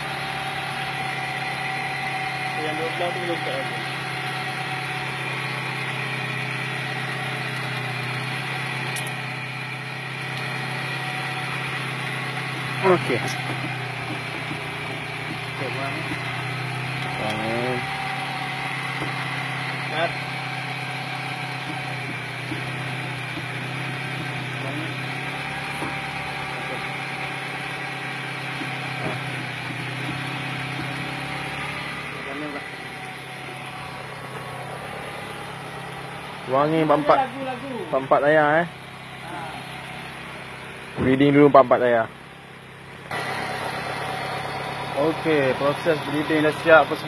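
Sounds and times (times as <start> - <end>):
machine humming: 0.0 - 38.2, 43.0 - 46.9
car engine idling: 0.0 - 47.0
sharp click: 8.9 - 9.2.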